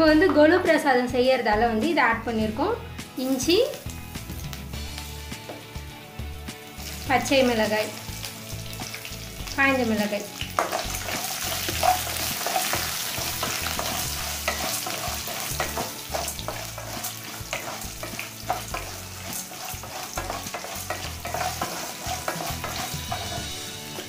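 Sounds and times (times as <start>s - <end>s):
food sizzling in hot oil: 2.6s - 24.0s
spatula scraping a metal pan: 10.6s - 24.0s.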